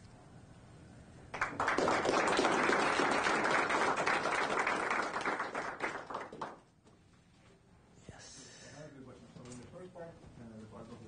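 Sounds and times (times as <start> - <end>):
audience applauding: 1.3 - 6.6.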